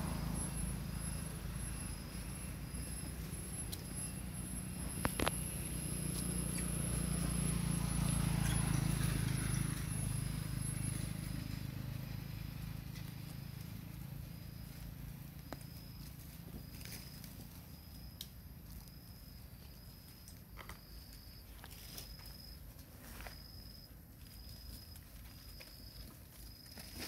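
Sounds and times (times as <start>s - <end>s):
high-pitched whine: 0.0s - 19.4s.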